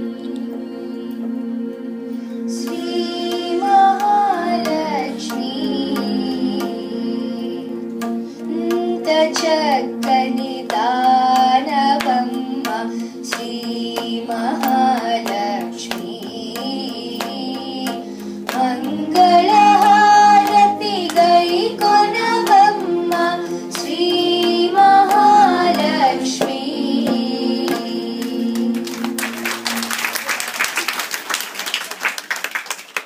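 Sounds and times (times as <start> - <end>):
steady drone: 0.0 - 30.3
girl singing into microphone: 2.5 - 29.1
tabla strokes: 8.0 - 29.8
applause: 28.6 - 33.0.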